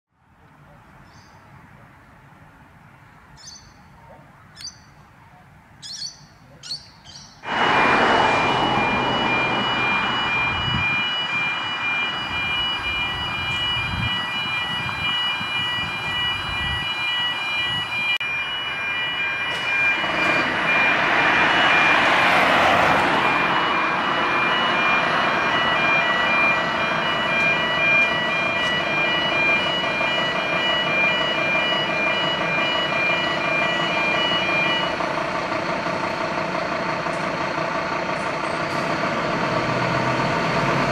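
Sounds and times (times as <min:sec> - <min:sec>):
fire truck mechanical noise: 0:00.2 - 0:40.9
birds chirping: 0:00.7 - 0:01.5, 0:03.0 - 0:07.5
high steady tones: 0:07.4 - 0:38.1.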